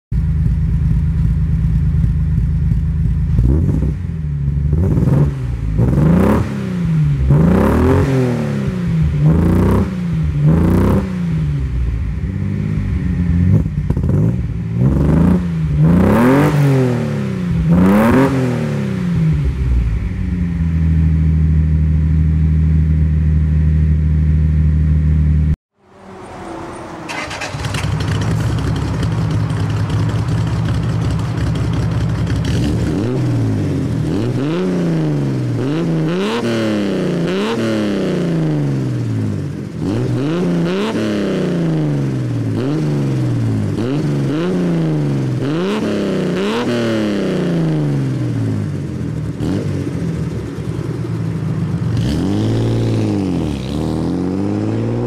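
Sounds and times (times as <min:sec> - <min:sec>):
car engine idling and revving: 0:00.1 - 0:55.0
second car engine idling: 0:00.2 - 0:03.5, 0:25.8 - 0:32.8.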